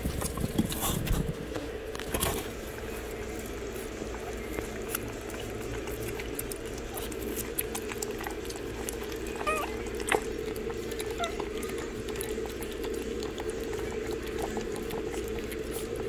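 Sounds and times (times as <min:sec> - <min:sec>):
puppies lapping wet food: 0:00.0 - 0:16.0
steady hum: 0:00.0 - 0:16.0
puppy squeak: 0:09.4 - 0:09.8, 0:11.1 - 0:11.7.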